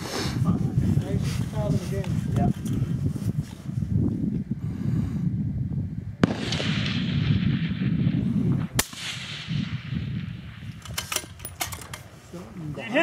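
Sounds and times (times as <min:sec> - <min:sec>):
rifle shots with echo: 0:06.2 - 0:11.6.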